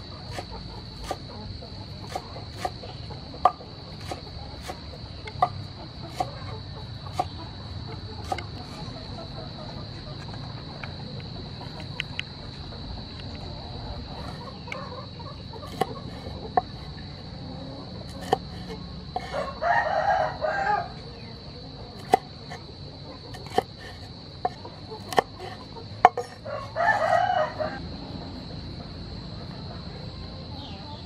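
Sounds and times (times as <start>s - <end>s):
cleaver striking cutting board: 0.3s - 1.2s, 2.1s - 2.8s, 3.4s - 6.4s, 7.1s - 7.4s, 8.2s - 8.5s, 15.7s - 16.9s, 18.1s - 19.4s, 22.0s - 22.2s, 23.3s - 26.4s
rooster crowing: 18.4s - 21.2s, 26.2s - 28.1s.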